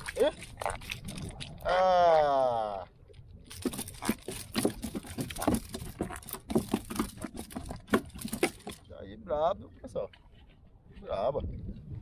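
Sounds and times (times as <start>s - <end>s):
taps and knocks on plastic kayak: 3.5s - 8.8s.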